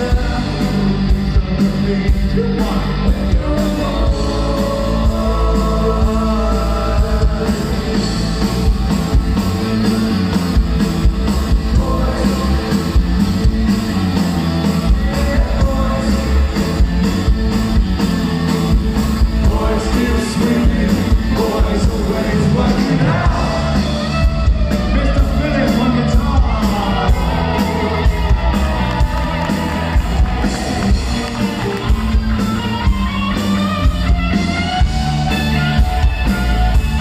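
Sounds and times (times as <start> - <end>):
man singing: 0.0 - 8.3, 11.4 - 13.1, 14.6 - 16.9, 19.3 - 28.5
electric guitars: 0.0 - 37.0
drum beat: 6.1 - 37.0.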